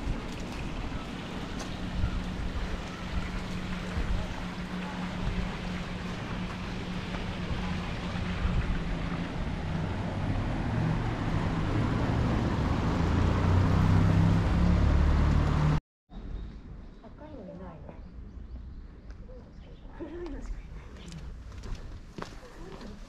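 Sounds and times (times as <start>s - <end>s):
wind rumble on microphone: 0.0s - 14.5s
motor traffic hum: 0.0s - 15.8s.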